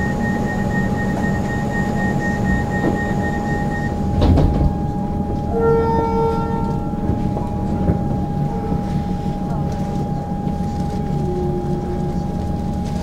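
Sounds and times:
rapid beeping: 0.0 - 4.1
train equipment whine: 0.0 - 13.0.

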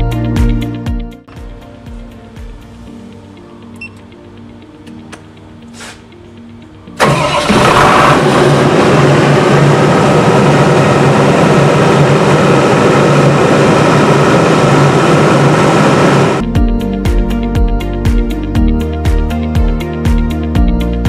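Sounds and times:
diesel generator running: 7.0 - 16.4.

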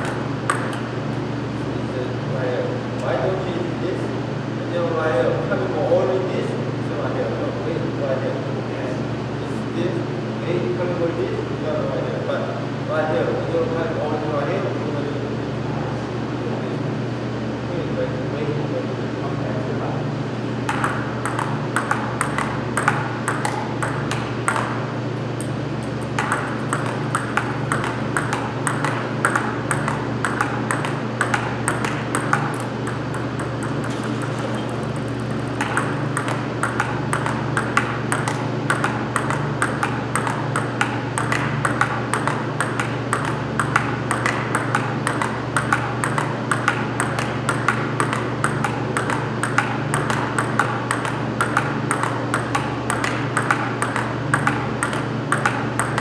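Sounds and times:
table tennis ball clicking: 0.0 - 0.9, 20.7 - 24.8, 25.4 - 56.0
steady low hum: 0.0 - 56.0.

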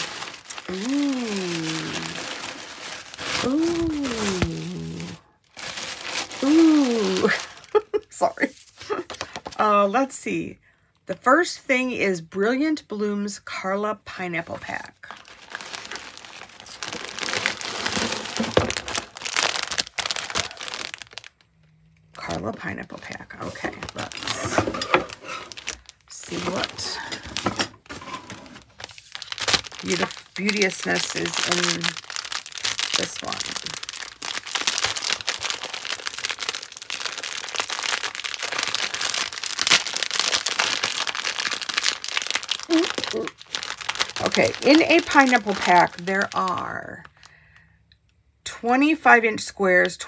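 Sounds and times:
plastic and tissue paper crinkling: 0.0 - 9.6, 14.6 - 21.6, 22.2 - 47.3.

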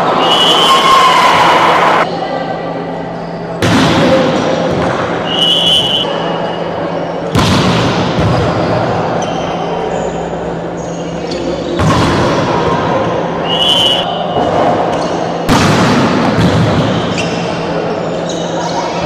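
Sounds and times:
steady background noise: 0.0 - 19.0
volleyball struck hard: 7.3 - 8.6, 15.5 - 16.9.

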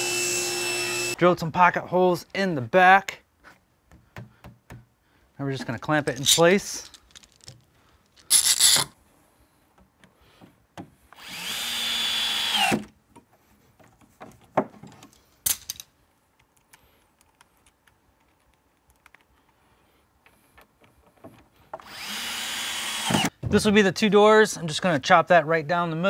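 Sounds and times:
cordless drill driving screw: 0.0 - 1.2, 8.2 - 8.9, 11.1 - 12.8, 21.8 - 23.3.

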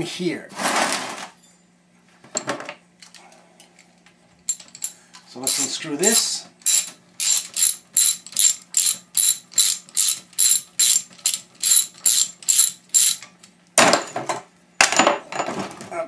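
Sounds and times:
ratchet pawl clicking: 4.8 - 13.2.

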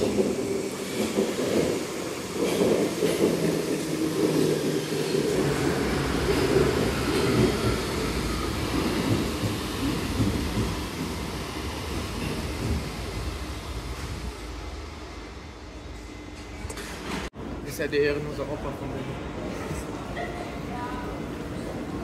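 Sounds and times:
train wheels rumbling on rails: 0.0 - 17.3.

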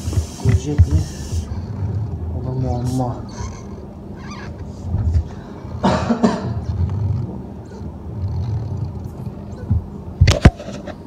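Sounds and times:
tool rubbing on tyre: 0.0 - 4.6.

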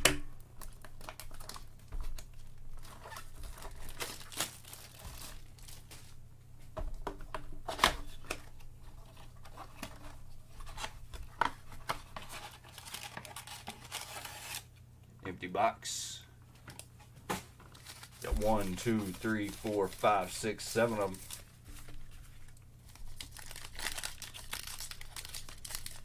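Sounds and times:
plastic shrink wrap crinkling: 0.6 - 6.2, 8.0 - 14.7, 17.6 - 26.0.

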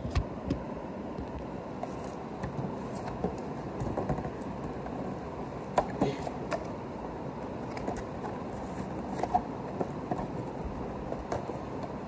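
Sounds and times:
low background noise: 0.0 - 12.0
cardboard box clicks and rustles: 7.4 - 12.0.

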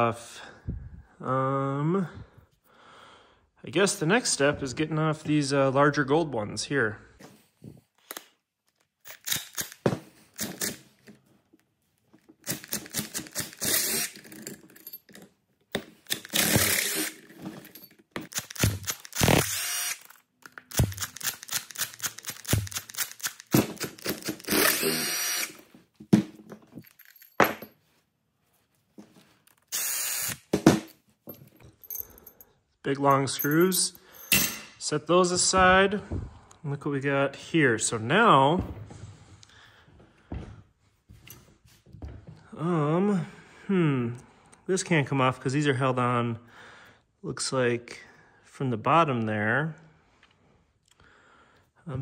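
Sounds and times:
impact driver in short bursts: 18.3 - 20.1, 20.7 - 25.6, 29.7 - 30.6.

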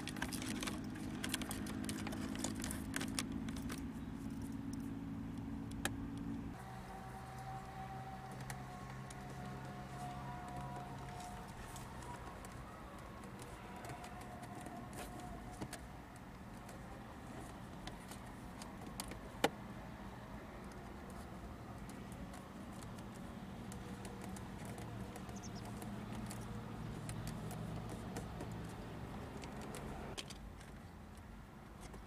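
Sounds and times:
steady low hum: 0.0 - 18.6
fingertips clicking and rubbing plastic: 0.0 - 32.0.

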